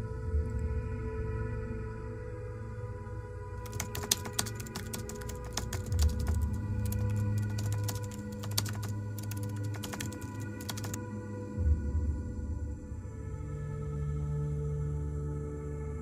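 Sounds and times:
keyboard typing clicks: 3.6s - 11.0s.

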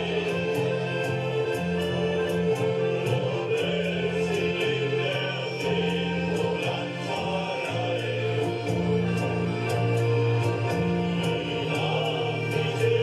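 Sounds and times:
men's choir singing: 0.0s - 13.0s
piano accordion: 0.0s - 13.0s.

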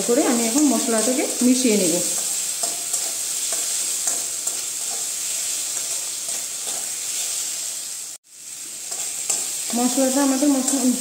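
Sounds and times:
food sizzling in a pan: 0.0s - 11.0s
spatula tapping a pan: 2.1s - 5.1s
wooden spatula scraping a pan: 2.1s - 7.5s.

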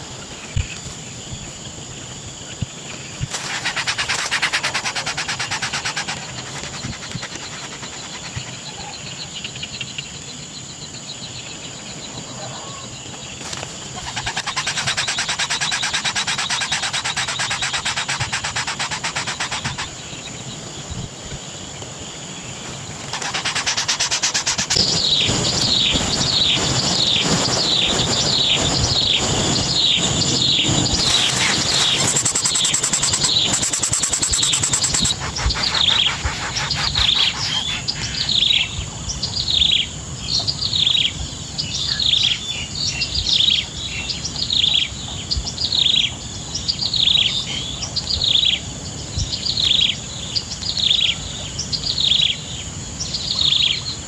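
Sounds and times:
pulsed insect trill: 0.0s - 45.0s
high insect buzz: 0.1s - 10.0s, 13.3s - 20.4s, 21.6s - 38.8s.

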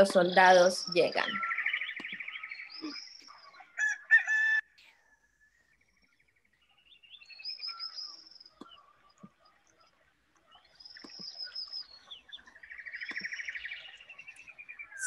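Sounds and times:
songbirds chirping: 0.0s - 15.0s
rooster crowing: 3.8s - 4.8s.

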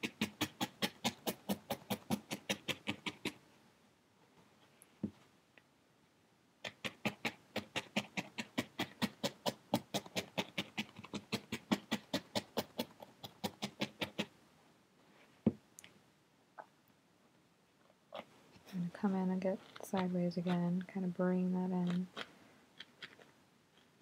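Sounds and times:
felting needle poking into foam: 0.0s - 3.4s, 6.6s - 14.3s, 19.4s - 20.9s.

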